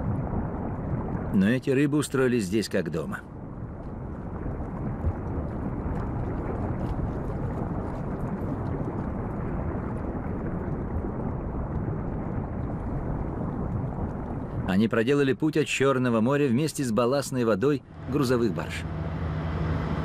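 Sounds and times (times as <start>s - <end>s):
river water rushing underwater: 17.8s - 20.0s.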